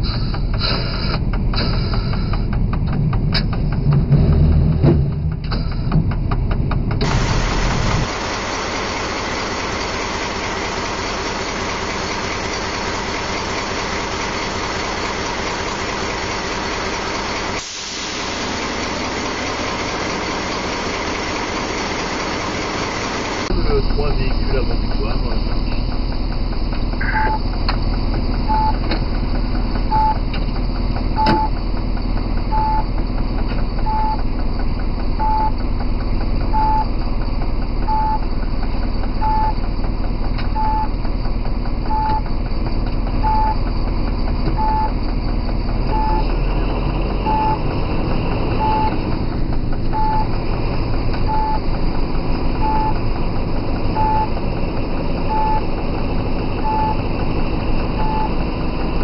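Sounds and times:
diesel locomotive engine running: 0:00.0 - 0:59.0
short cab beeps: 0:27.0 - 0:27.4, 0:28.4 - 0:28.8, 0:29.9 - 0:30.2, 0:31.2 - 0:31.6, 0:32.5 - 0:32.9, 0:33.8 - 0:34.2, 0:35.2 - 0:35.6, 0:36.5 - 0:36.9, 0:37.9 - 0:38.2, 0:39.2 - 0:39.6, 0:40.5 - 0:40.9, 0:41.9 - 0:42.3, 0:43.2 - 0:43.6, 0:44.6 - 0:44.9, 0:45.9 - 0:46.3, 0:47.3 - 0:47.6, 0:48.6 - 0:49.0, 0:50.0 - 0:50.3, 0:51.3 - 0:51.6, 0:52.6 - 0:53.0, 0:54.0 - 0:54.3, 0:55.3 - 0:55.7, 0:56.6 - 0:57.0, 0:58.0 - 0:58.4.

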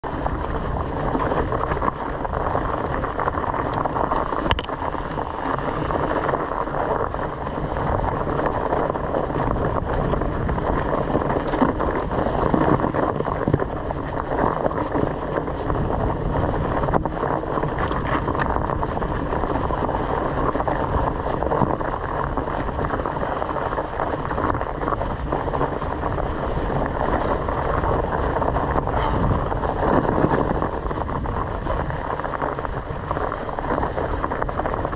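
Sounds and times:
bike tyres rumbling on dirt: 0:00.0 - 0:34.9
wind on camera microphone: 0:00.0 - 0:34.9.

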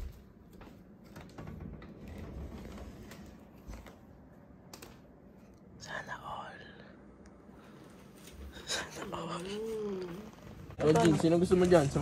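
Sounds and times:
sliding door rumbling open: 0:01.0 - 0:03.9.

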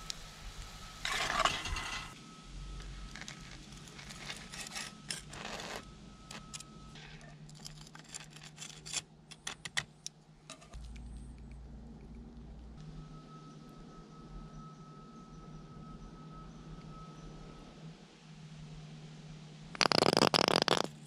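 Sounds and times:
metal utensils scraping a pan: 0:01.0 - 0:02.2.

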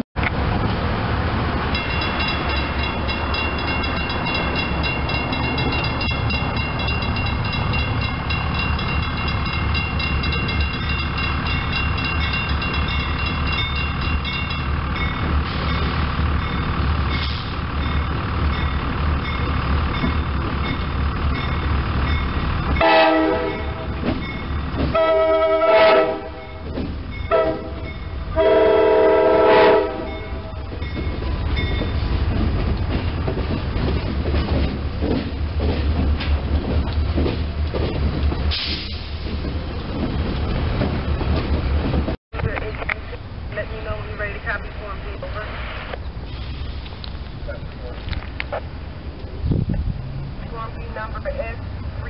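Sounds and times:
diesel locomotives rumbling: 0:00.2 - 0:52.0
locomotive horn blasts: 0:22.8 - 0:24.0, 0:24.9 - 0:26.6, 0:27.3 - 0:30.6.

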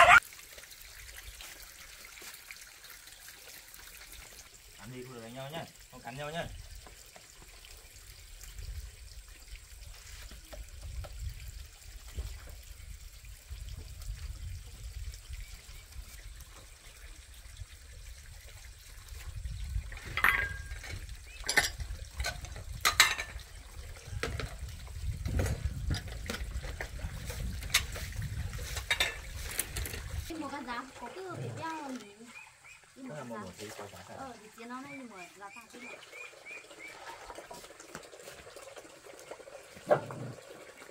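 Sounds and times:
dogs lapping and chewing: 0:20.4 - 0:32.4.

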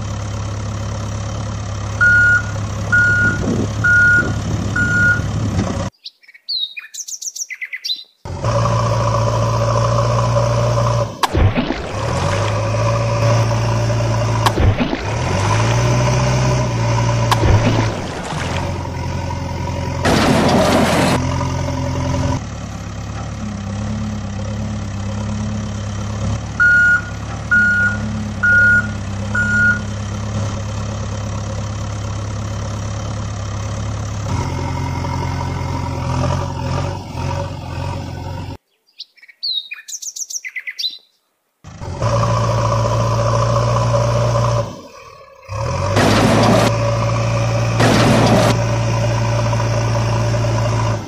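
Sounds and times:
heavy diesel engine running: 0:00.0 - 0:05.9, 0:08.3 - 0:38.6, 0:41.7 - 0:51.0
reversing beeps: 0:02.0 - 0:05.3, 0:26.6 - 0:29.9
birds chirping: 0:05.9 - 0:08.3, 0:38.6 - 0:41.3.

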